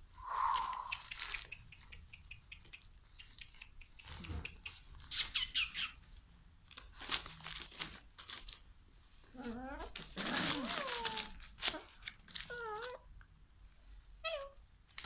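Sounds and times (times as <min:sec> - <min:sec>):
puppies squeaking and yelping: 0:00.8 - 0:06.0.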